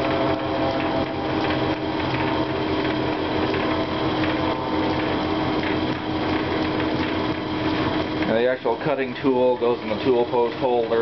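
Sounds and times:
metal lathe gears whirring: 0:00.0 - 0:11.0
steady hum: 0:00.0 - 0:11.0.

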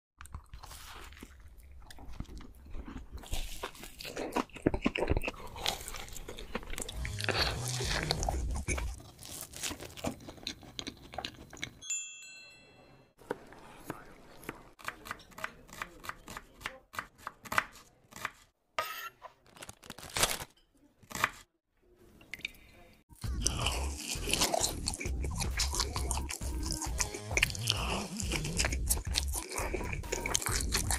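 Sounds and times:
close-miked crunching and chewing: 0:00.2 - 0:11.8, 0:23.2 - 0:30.9
wind chime ringing: 0:11.8 - 0:13.2.

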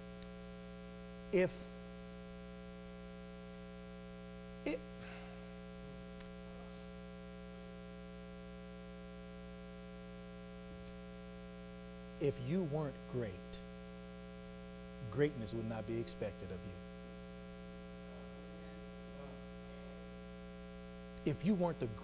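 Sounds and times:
electrical mains hum: 0:00.0 - 0:22.0
short vocal sound: 0:04.6 - 0:05.4.

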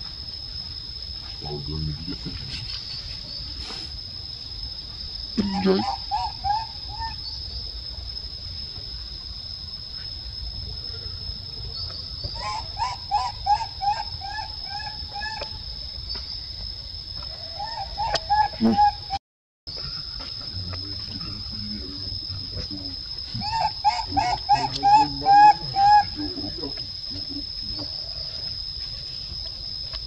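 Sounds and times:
high-pitched insect drone: 0:00.0 - 0:30.0
baby monkey crying: 0:05.4 - 0:07.2, 0:23.4 - 0:26.6.

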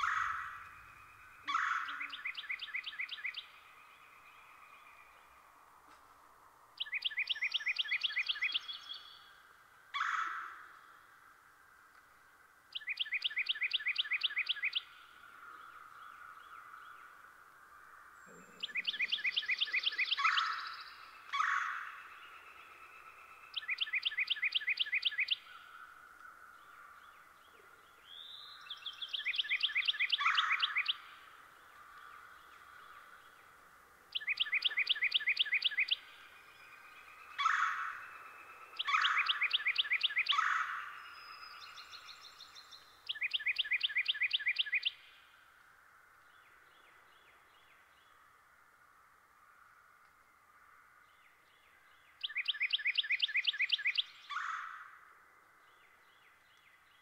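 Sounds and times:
songbird trilling: 0:00.0 - 0:03.7, 0:06.8 - 0:09.2, 0:12.7 - 0:15.0, 0:18.2 - 0:25.8, 0:28.0 - 0:31.2, 0:34.1 - 0:45.1, 0:52.2 - 0:54.9
faint steady background noise: 0:00.0 - 0:57.0.

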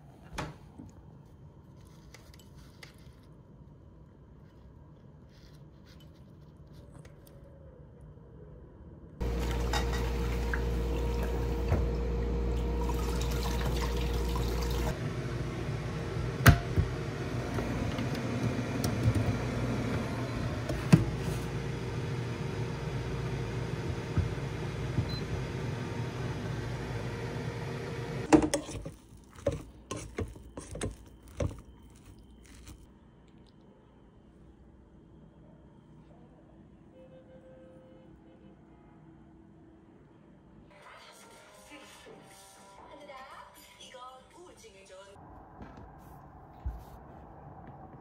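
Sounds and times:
water running from a tap: 0:12.7 - 0:15.0.

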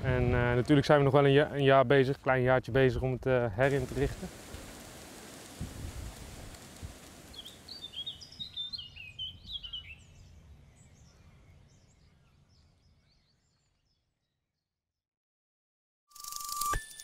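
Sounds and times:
bird chirping: 0:07.2 - 0:14.5.

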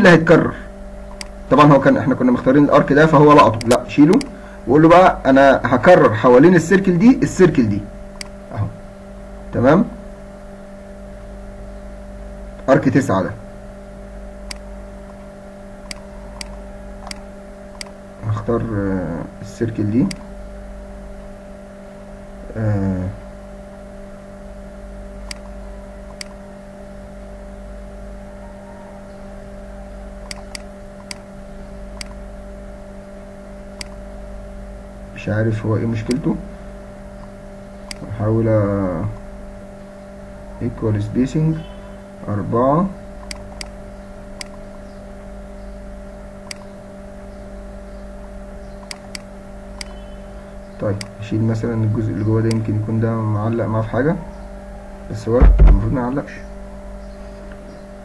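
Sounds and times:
electrical hum: 0:00.0 - 0:58.0
computer mouse clicking: 0:01.1 - 0:01.4, 0:14.5 - 0:15.2, 0:15.8 - 0:18.0, 0:25.2 - 0:26.4, 0:30.2 - 0:31.2, 0:33.8 - 0:34.0, 0:43.2 - 0:43.8, 0:44.4 - 0:44.8, 0:46.4 - 0:46.7, 0:48.8 - 0:50.0
murmured voice: 0:22.5 - 0:23.2.

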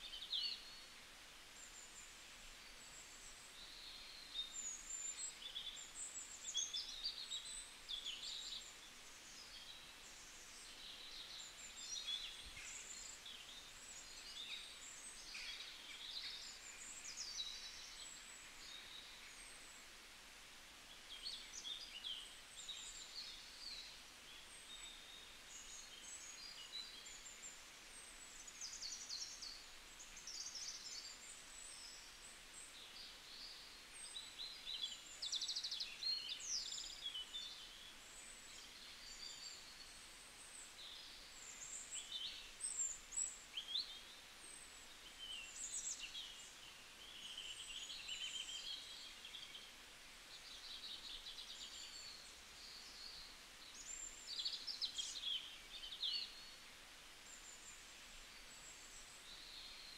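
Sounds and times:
faint steady hiss: 0:00.0 - 0:59.9
small birds chirping and trilling: 0:20.8 - 0:59.9.

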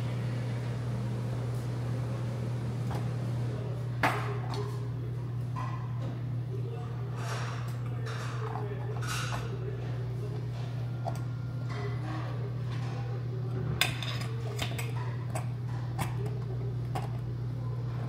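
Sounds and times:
steady low hum: 0:00.0 - 0:18.0
utensils clinking against dishes: 0:05.5 - 0:18.0.

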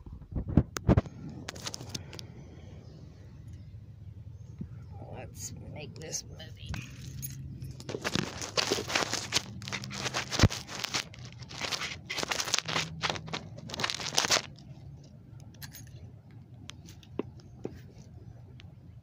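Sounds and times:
crinkling and rustling handling: 0:00.2 - 0:02.3, 0:06.0 - 0:18.8.

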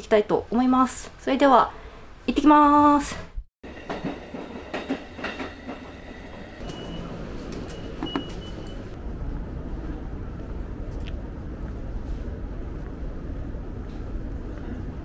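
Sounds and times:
ticket gate beeps: 0:06.6 - 0:09.0
low rumble: 0:08.9 - 0:15.0.

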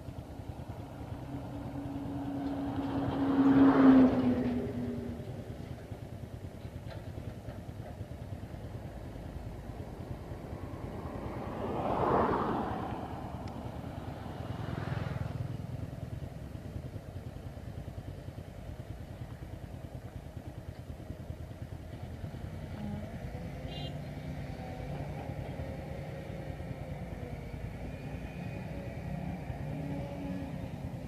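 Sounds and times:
vehicle passing close: 0:00.0 - 0:05.6, 0:08.6 - 0:16.6
faint engine drone: 0:00.0 - 0:31.0
vehicle engines rumbling: 0:00.0 - 0:31.0.

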